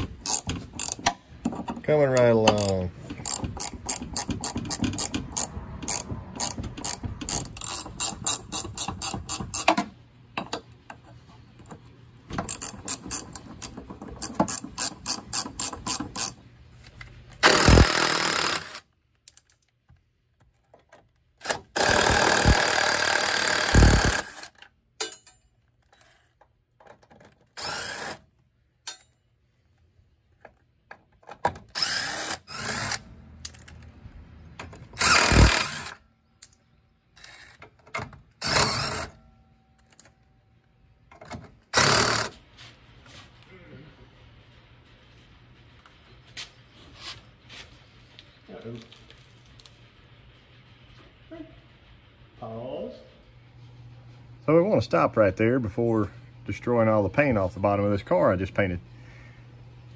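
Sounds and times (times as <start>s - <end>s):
ratchet wrench clicking: 0.2s - 1.2s, 2.6s - 9.8s, 12.4s - 16.4s, 17.4s - 19.4s, 35.0s - 36.0s
impact driver hammering: 17.4s - 18.8s, 21.4s - 24.5s, 35.0s - 36.0s.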